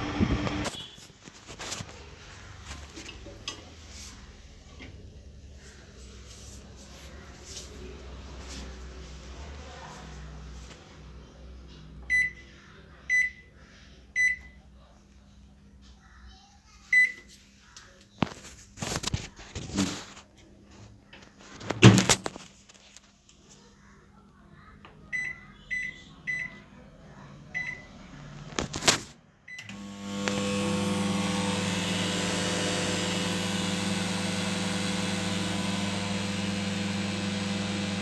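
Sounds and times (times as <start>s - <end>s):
keypad beeps: 12.1s - 12.4s
microwave oven humming: 29.5s - 38.0s.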